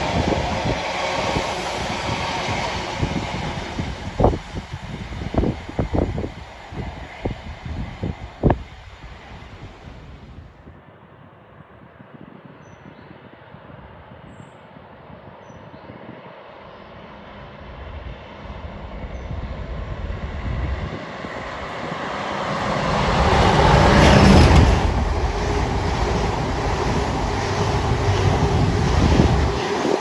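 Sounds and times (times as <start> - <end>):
coaches running over rails: 0.0 - 10.2, 17.7 - 30.0
diesel locomotive engine: 0.0 - 10.4, 16.8 - 30.0.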